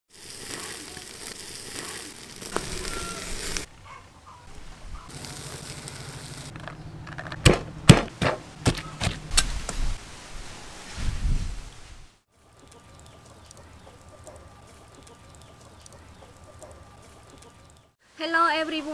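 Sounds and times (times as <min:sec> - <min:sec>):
meat sizzling on grill: 0:00.1 - 0:03.7, 0:05.1 - 0:06.5
charcoal fire crackling: 0:00.1 - 0:18.0
pestle pounding in mortar: 0:07.4 - 0:09.2.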